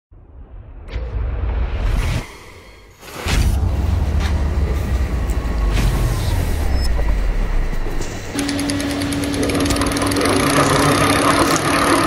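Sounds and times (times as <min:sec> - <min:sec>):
electric motor rumbling and humming: 0:04.0 - 0:12.0.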